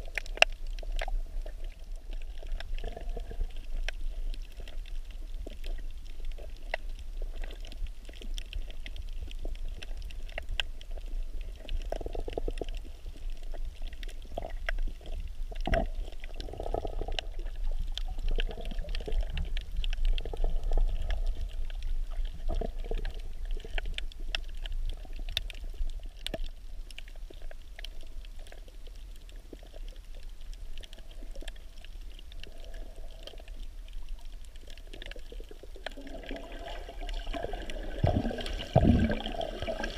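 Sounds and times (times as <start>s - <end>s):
faint underwater clicks and crackles: 0.0s - 39.9s
muffled underwater rumble: 0.0s - 39.9s
swirling water: 30.8s - 39.9s.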